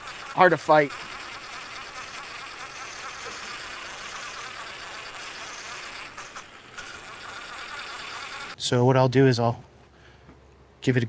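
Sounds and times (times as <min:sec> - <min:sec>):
drill wire brush whirring: 0:00.0 - 0:08.6.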